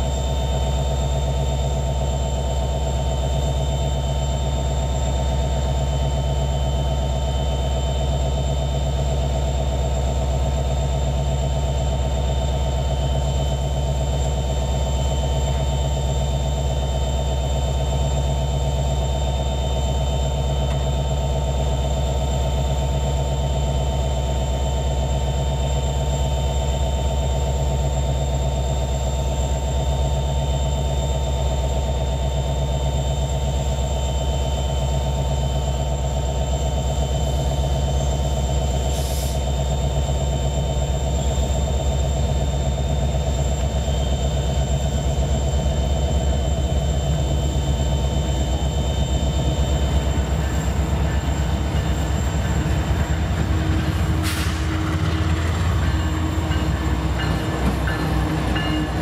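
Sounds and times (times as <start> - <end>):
diesel locomotive engine rumble: 0.0 - 59.0
brief hisses: 38.9 - 39.4, 54.2 - 54.8
thin steady whine: 40.7 - 59.0.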